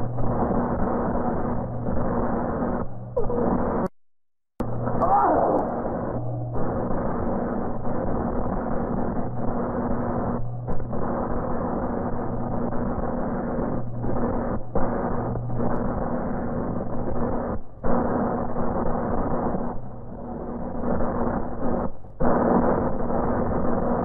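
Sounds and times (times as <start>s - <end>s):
low hum: 0.0s - 3.9s, 4.6s - 17.4s
dense rush of noise: 4.7s - 13.8s.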